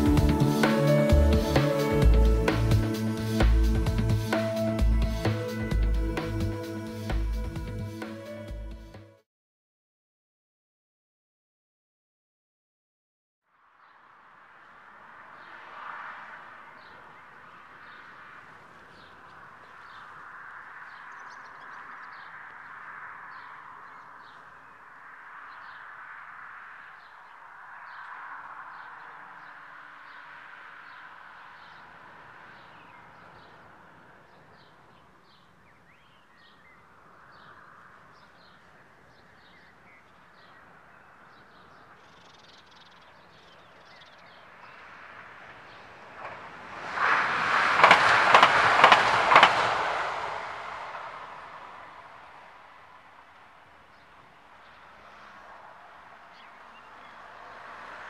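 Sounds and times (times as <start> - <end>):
birds calling and singing: 16.8 - 24.9, 27.0 - 44.8.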